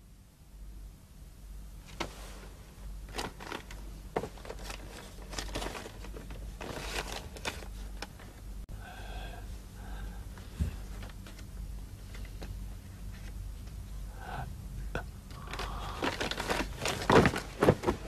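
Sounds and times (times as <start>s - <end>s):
low steady hum: 0.0s - 18.0s
stiff paper rustling and crackling: 3.1s - 8.4s, 15.3s - 18.0s.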